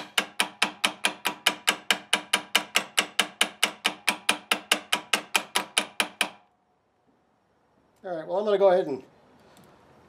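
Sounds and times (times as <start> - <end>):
hammer tapping on metal: 0.0 - 6.5.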